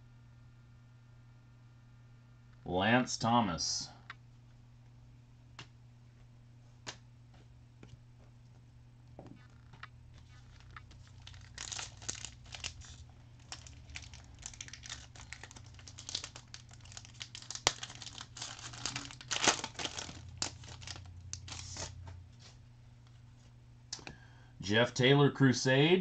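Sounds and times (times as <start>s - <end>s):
foil wrapper tearing and crinkling: 10.2s - 22.0s.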